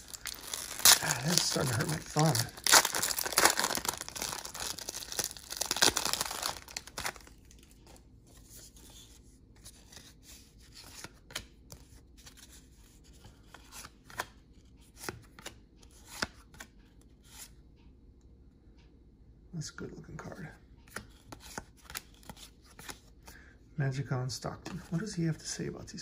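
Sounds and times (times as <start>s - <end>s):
wrapper tearing and crinkling: 0.0s - 7.3s
cards rustling and clicking: 0.0s - 8.0s, 20.9s - 23.4s.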